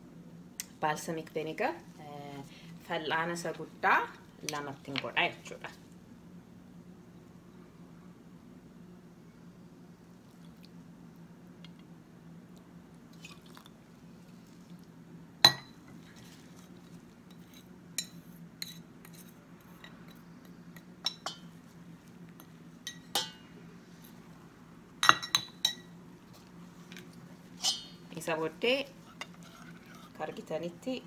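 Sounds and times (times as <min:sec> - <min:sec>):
faint steady hum: 0:00.0 - 0:31.0
glass and dishes clinking: 0:15.5 - 0:15.8, 0:25.0 - 0:25.9.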